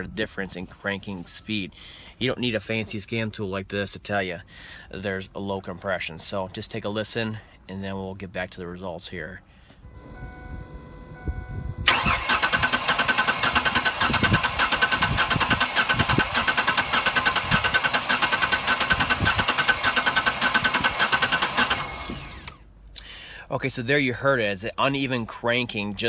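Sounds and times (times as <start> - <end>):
engine cranking on starter: 11.8 - 22.7.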